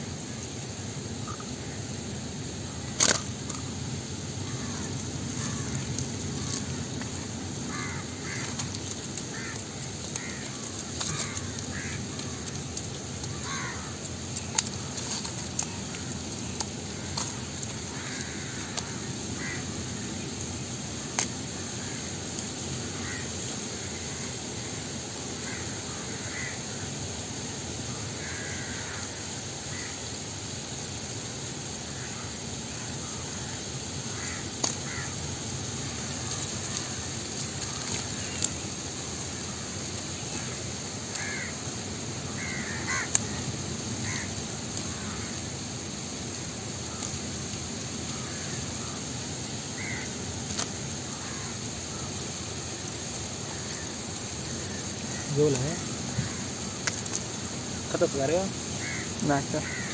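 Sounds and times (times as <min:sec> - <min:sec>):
steady background hiss: 0:00.0 - 0:59.9
crows cawing: 0:04.4 - 0:06.8, 0:07.6 - 0:12.6, 0:13.2 - 0:14.9, 0:16.9 - 0:19.8, 0:22.9 - 0:24.3, 0:25.4 - 0:26.9, 0:28.2 - 0:30.0, 0:33.0 - 0:35.2, 0:36.0 - 0:38.4, 0:40.4 - 0:41.7, 0:42.3 - 0:45.5, 0:49.7 - 0:50.2, 0:51.0 - 0:52.1, 0:53.5 - 0:57.2, 0:58.7 - 0:59.9.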